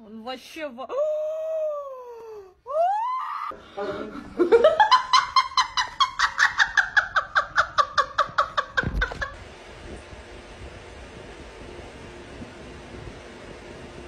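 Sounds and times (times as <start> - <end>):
high-pitched shrieking laughter: 1.0 - 3.6, 4.8 - 9.3.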